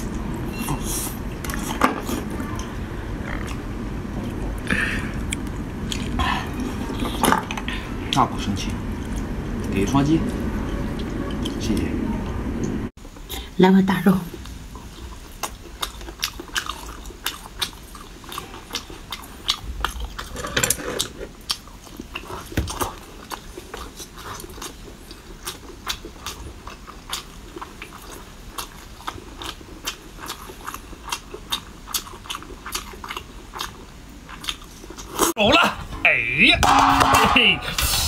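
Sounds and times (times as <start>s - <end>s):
person chewing with mouth smacks: 4.2s - 7.2s, 21.0s - 35.3s.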